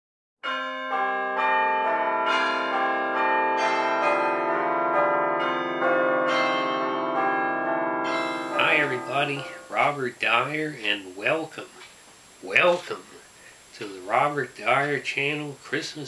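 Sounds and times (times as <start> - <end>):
bell chimes melody: 0.4 - 10.1.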